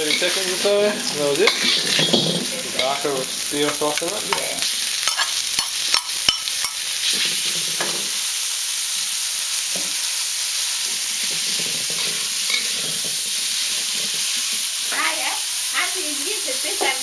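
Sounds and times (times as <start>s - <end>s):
metal spatula scraping a wok: 0.0s - 8.1s, 10.8s - 14.7s
meat and onions sizzling in a wok: 0.0s - 17.0s.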